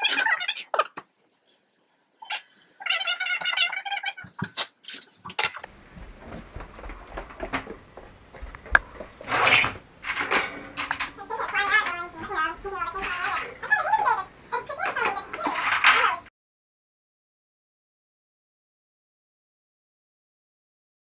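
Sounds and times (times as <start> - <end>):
dishes clicking and knocking: 5.3 - 16.3
toaster oven door opening: 9.3 - 14.1.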